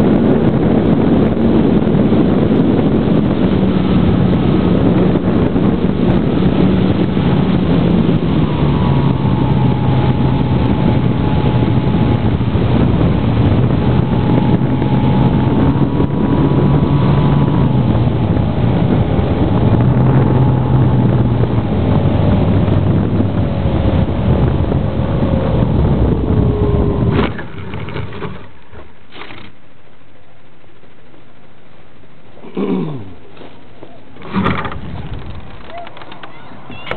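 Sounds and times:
electric motor and propeller whining: 0.0 - 29.5
wind rushing on microphone: 0.0 - 36.9.

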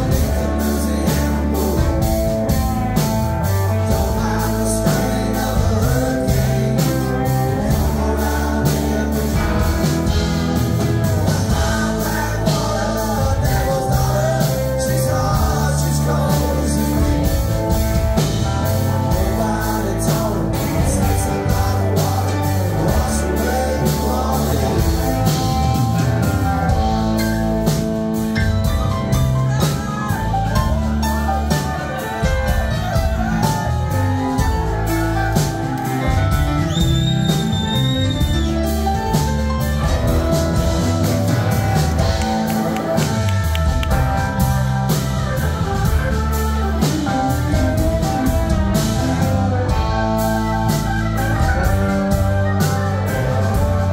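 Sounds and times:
live rock band playing: 0.0 - 53.9.

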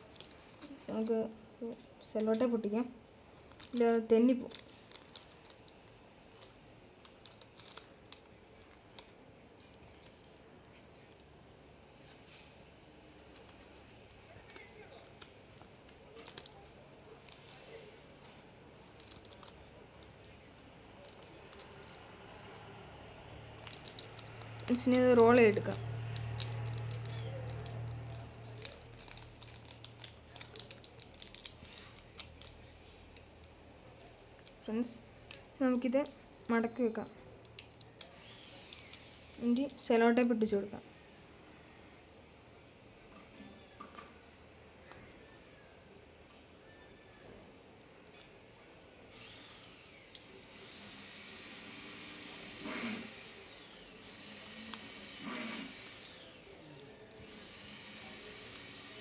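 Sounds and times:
plastic wrapper crinkling: 0.0 - 11.3, 13.2 - 39.9
faint high whine: 0.0 - 59.0
steady hiss: 45.6 - 59.0.

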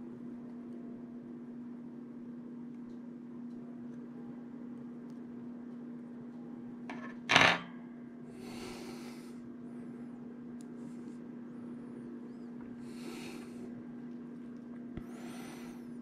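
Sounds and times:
low electrical hum: 0.0 - 16.0
soft rubbing sounds: 10.8 - 11.3.

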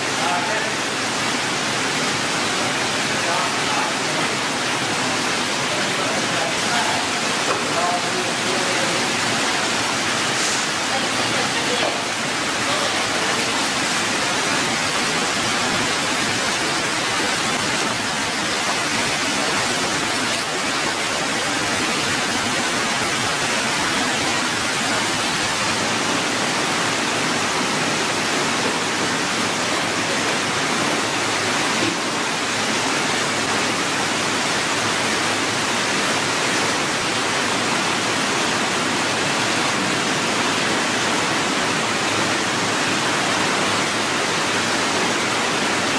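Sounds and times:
running water rushing: 0.0 - 45.9.

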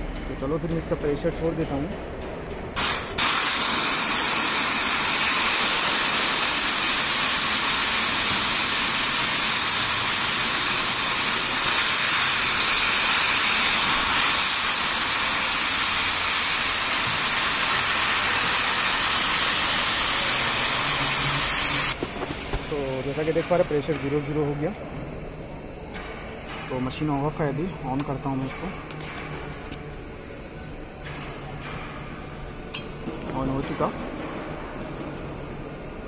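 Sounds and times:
pressurised gas hissing: 2.8 - 23.3.

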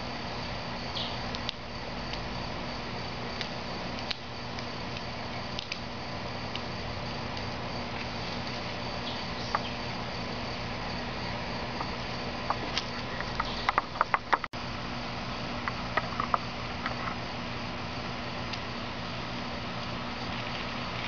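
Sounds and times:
sharp light clicks and taps: 3.4 - 5.8.

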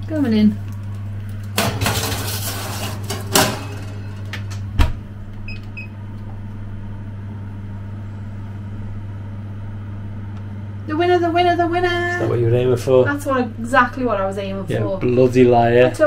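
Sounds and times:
steady low hum: 0.0 - 16.0
baking tray rattling: 1.6 - 4.3
oven door shutting thud: 1.6 - 5.2.

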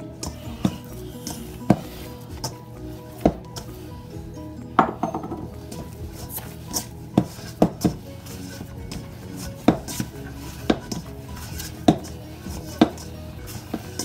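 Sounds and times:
kitchenware knocking on hard surface: 4.8 - 5.6.

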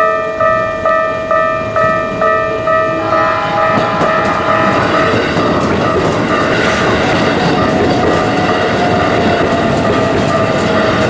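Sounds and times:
level crossing bell ringing: 0.0 - 6.8
train passing close by: 0.8 - 11.0.

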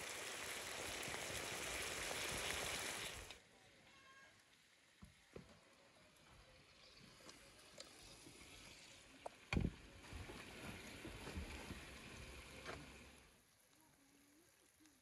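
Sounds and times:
fish sizzling in a pan: 0.0 - 3.4.

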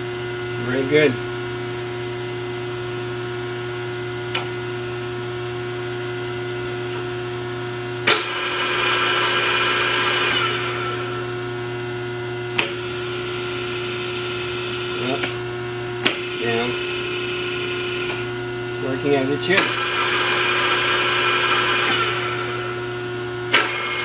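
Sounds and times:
drill press motor hum: 0.0 - 24.0
switch clicks: 4.3 - 4.6, 12.6 - 12.8
gear whine: 8.0 - 11.5, 16.0 - 24.0.

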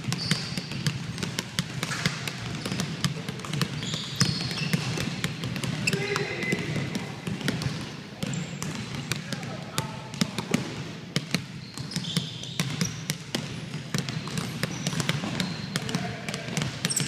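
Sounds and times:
basketballs bouncing on wooden floor: 0.0 - 17.0.

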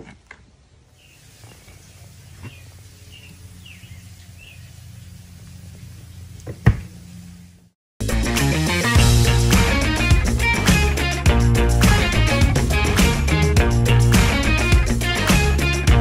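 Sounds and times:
birds chirping: 0.9 - 7.5.

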